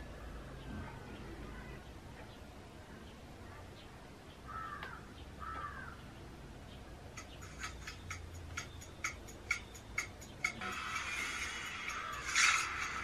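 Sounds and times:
bird calling: 0:04.5 - 0:06.1.

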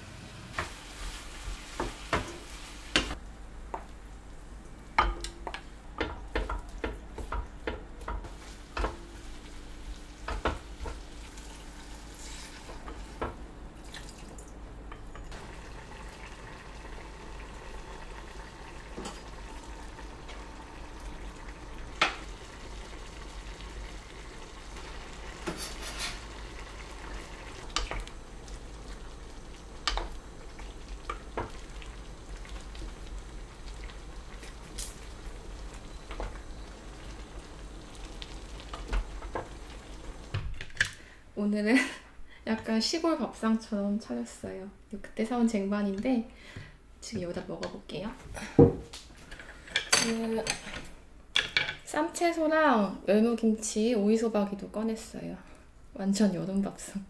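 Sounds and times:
food sizzling in a pot: 0:00.0 - 0:03.2, 0:08.1 - 0:13.3, 0:15.3 - 0:40.5.

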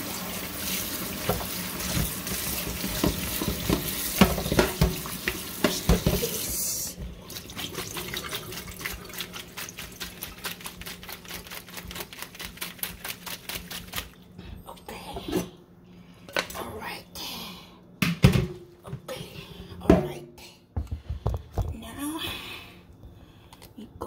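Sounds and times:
kitchen tap running into sink: 0:00.0 - 0:11.9.

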